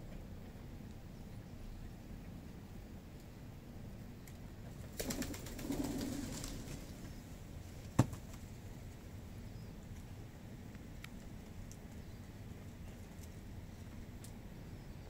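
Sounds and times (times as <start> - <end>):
bird wings flapping: 4.8 - 7.1.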